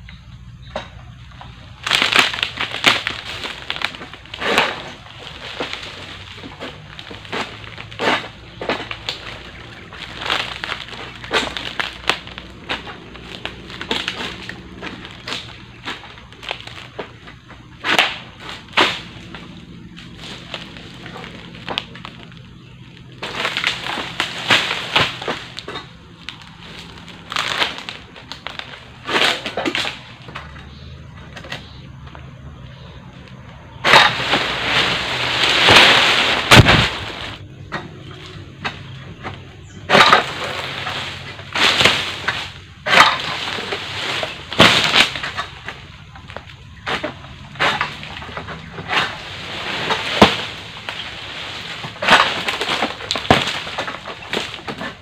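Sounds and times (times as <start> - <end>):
palm fronds rustling and crackling: 0.0 - 55.0
sickle hacking palm fronds: 1.3 - 31.8, 32.8 - 55.0.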